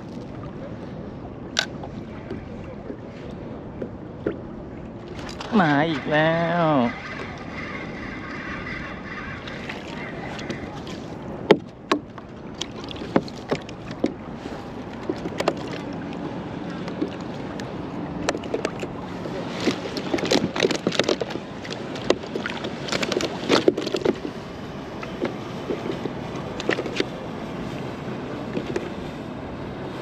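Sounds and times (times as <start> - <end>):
wind: 0.0 - 30.0
water washing: 4.3 - 29.4
clicks and knocks on plastic kayak: 11.5 - 14.2.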